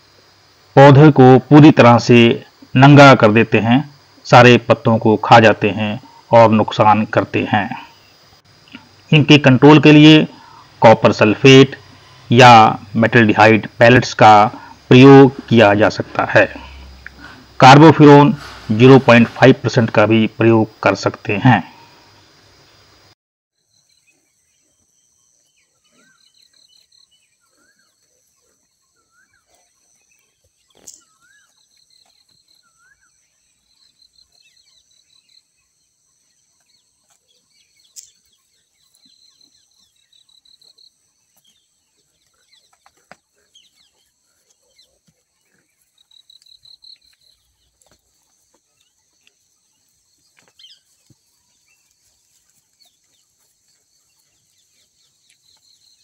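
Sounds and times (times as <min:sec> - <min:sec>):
faint bird chirps and trills: 0:21.6 - 0:56.0.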